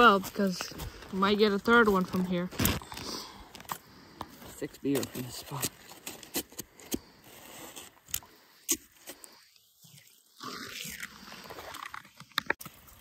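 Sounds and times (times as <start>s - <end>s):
scraping and crunching in snow: 4.4s - 8.1s.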